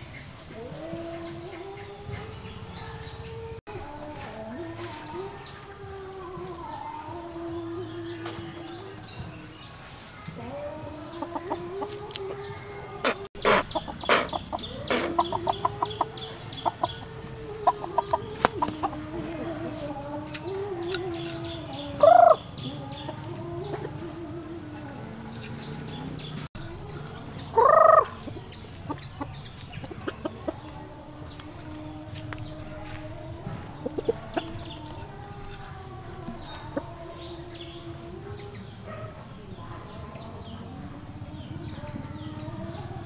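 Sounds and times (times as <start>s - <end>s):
rooster clucking: 10.3s - 26.4s, 27.3s - 30.8s, 33.3s - 35.3s.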